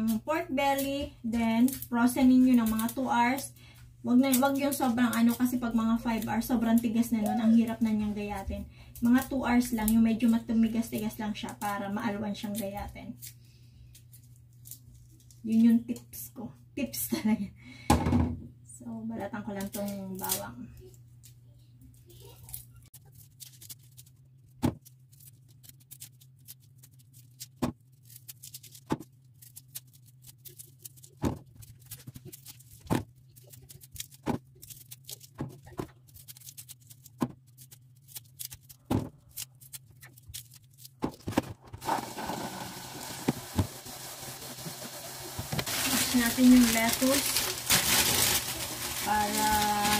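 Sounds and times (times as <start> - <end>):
rustling: 22.2 - 49.9.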